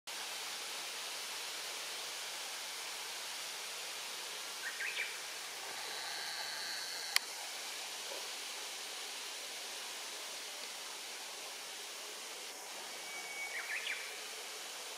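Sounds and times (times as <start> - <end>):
outdoor background hiss: 0.1 - 14.9
thin high tone: 12.6 - 14.4.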